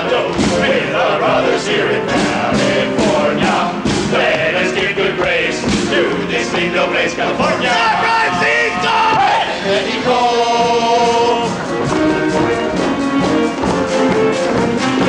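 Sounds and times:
group singing over a band: 0:00.0 - 0:13.8.

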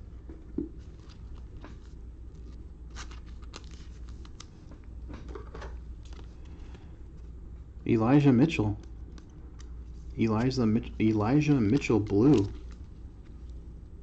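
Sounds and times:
steady low hum: 0:00.0 - 0:14.0
cards and plastic holder handled: 0:08.8 - 0:13.4.

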